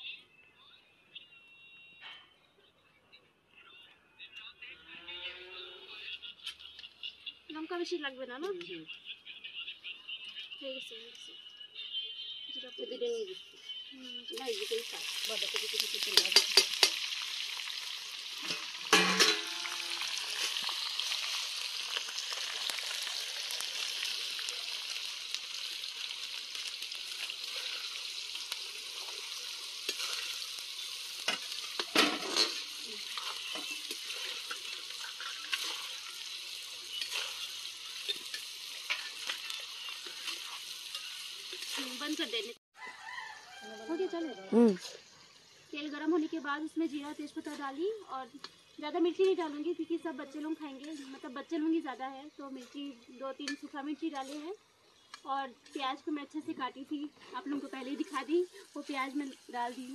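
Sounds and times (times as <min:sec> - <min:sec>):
onions sizzling in hot oil: 0:14.0 - 0:42.6, 0:43.6 - 0:59.9
ladle clinking against pan: 0:19.0 - 0:19.8.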